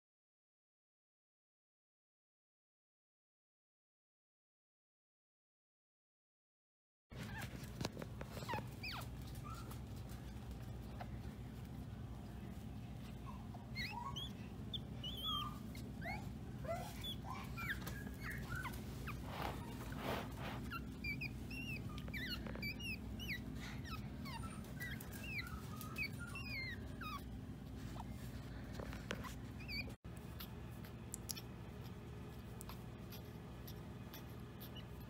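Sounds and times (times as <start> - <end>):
steady low hum: 7.1 - 35.0
puppy whimpering: 7.2 - 35.0.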